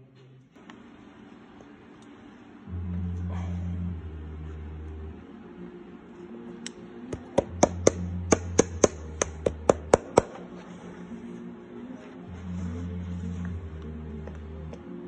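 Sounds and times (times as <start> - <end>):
hammer striking leather: 7.1 - 10.4.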